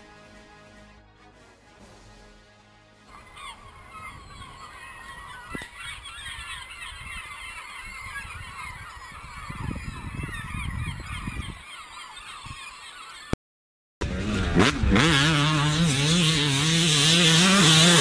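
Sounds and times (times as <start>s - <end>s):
flock of birds calling: 3.1s - 13.4s
wind rumbling on microphone: 3.2s - 11.7s.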